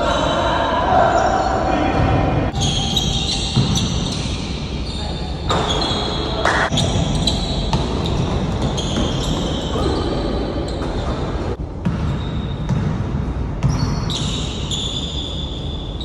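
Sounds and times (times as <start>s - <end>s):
steady background noise: 0.0s - 16.0s
basketball bouncing on a court: 2.0s - 4.2s, 5.5s - 9.8s, 11.8s - 14.4s.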